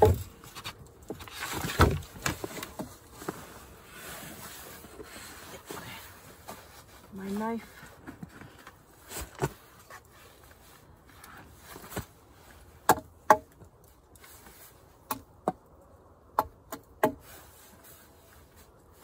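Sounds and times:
knife chopping wood: 12.8s - 13.5s, 16.4s - 17.2s.

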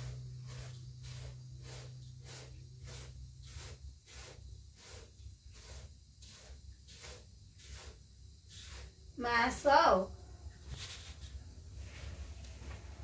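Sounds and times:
rice sliding over metal tray: 0.0s - 9.0s.

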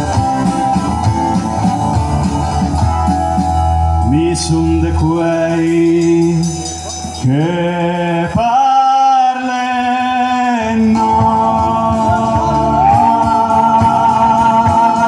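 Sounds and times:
drum kit beat: 0.0s - 8.6s, 11.0s - 15.0s
electric bass: 0.0s - 8.7s, 10.0s - 15.0s
acoustic guitar: 0.0s - 15.0s
man singing: 4.0s - 15.0s.

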